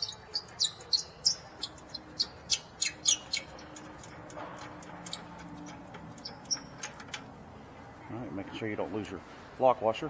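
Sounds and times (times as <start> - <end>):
ratchet wrench clicking: 0.0 - 5.3.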